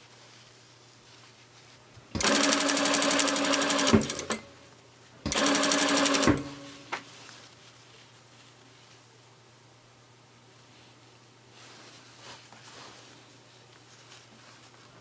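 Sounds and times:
sewing machine stitching: 0:02.2 - 0:04.5, 0:05.3 - 0:06.9.

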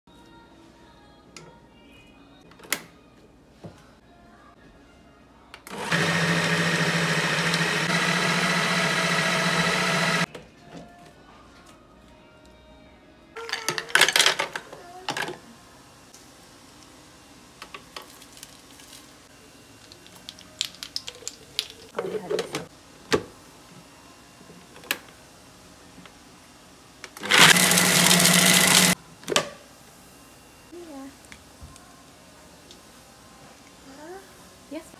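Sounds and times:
food processor motor running: 0:05.7 - 0:10.3, 0:27.2 - 0:29.0.

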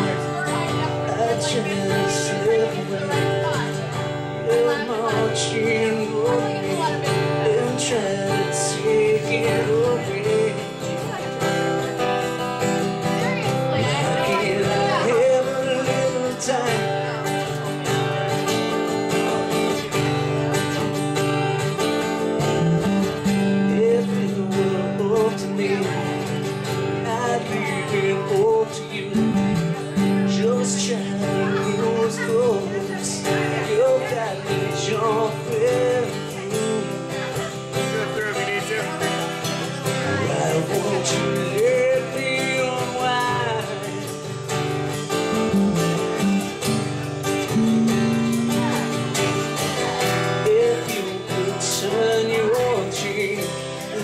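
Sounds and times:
live band playing: 0:00.0 - 0:54.0
strummed acoustic guitar: 0:00.0 - 0:54.0
drum kit: 0:19.0 - 0:23.4, 0:44.5 - 0:51.9
electric bass: 0:19.2 - 0:24.0, 0:44.4 - 0:51.5.

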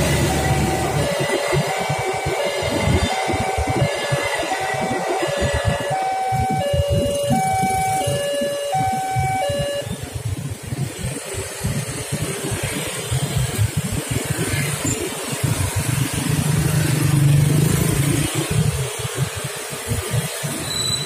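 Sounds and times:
two-tone warning chime: 0:00.0 - 0:10.1
motorcycles and cars pulling away: 0:00.0 - 0:21.0.

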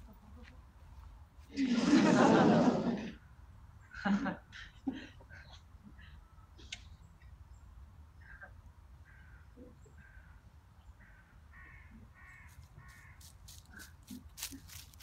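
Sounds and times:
bird calling: 0:08.2 - 0:13.9
footsteps in dry leaves: 0:12.3 - 0:15.0.

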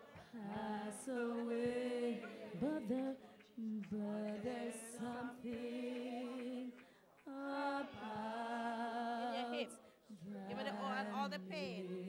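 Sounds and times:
person singing unaccompanied: 0:00.0 - 0:06.7.

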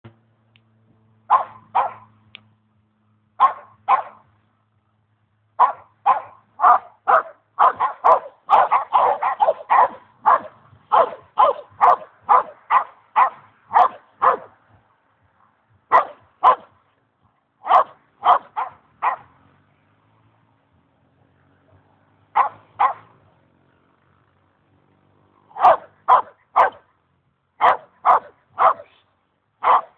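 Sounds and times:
dogs barking: 0:01.3 - 0:02.1, 0:03.4 - 0:04.3, 0:05.6 - 0:14.6, 0:15.9 - 0:16.8, 0:17.6 - 0:19.3, 0:22.3 - 0:23.2, 0:25.5 - 0:26.9, 0:27.6 - 0:29.0, 0:29.6 - 0:29.9.

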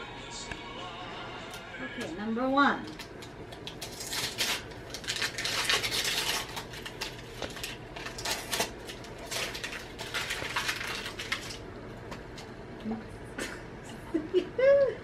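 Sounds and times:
wrapping paper rustling and tearing: 0:02.9 - 0:11.7.

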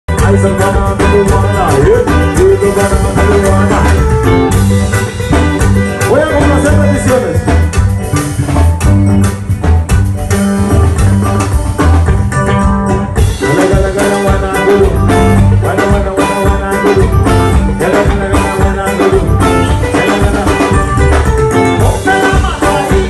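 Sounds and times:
drums and bass beat: 0:00.0 - 0:23.0
man singing into a microphone: 0:00.1 - 0:04.3, 0:06.0 - 0:07.6, 0:13.3 - 0:21.0, 0:21.7 - 0:23.0
electric guitar: 0:00.1 - 0:23.0.

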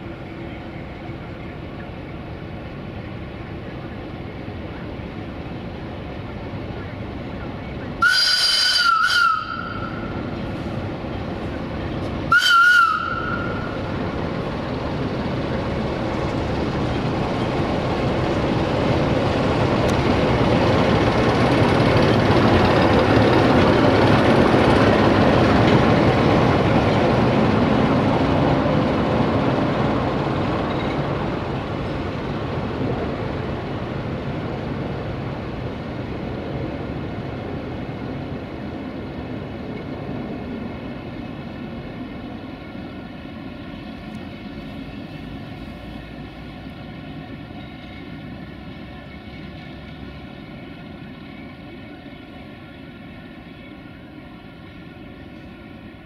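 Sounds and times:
diesel locomotive engine: 0:00.0 - 0:56.0
locomotive whistle blasts: 0:08.0 - 0:10.2, 0:12.3 - 0:13.8.

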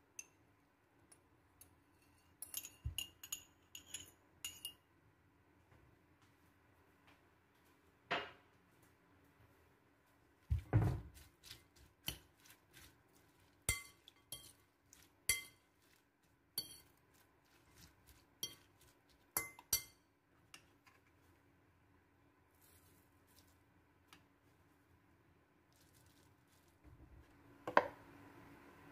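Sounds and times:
fork clinking on porcelain bowl: 0:02.0 - 0:04.8, 0:13.7 - 0:16.0, 0:16.6 - 0:17.0, 0:17.8 - 0:20.0.

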